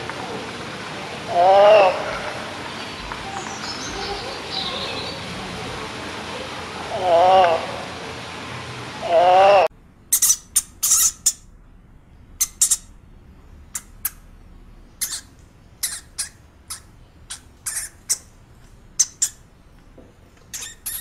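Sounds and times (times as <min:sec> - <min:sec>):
small rodent squeaking: 0:10.1 - 0:11.5, 0:12.4 - 0:12.9, 0:15.0 - 0:18.3, 0:19.0 - 0:19.4, 0:20.5 - 0:21.0.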